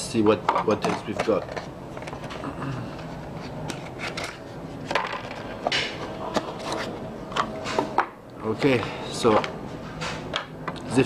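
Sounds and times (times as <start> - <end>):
plastic parts rubbing: 0.8 - 7.0.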